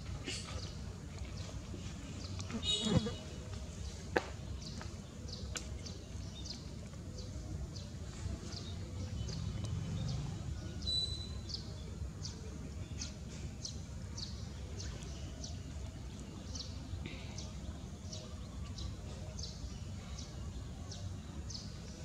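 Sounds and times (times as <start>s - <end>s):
bird chirping: 10.8s - 11.6s.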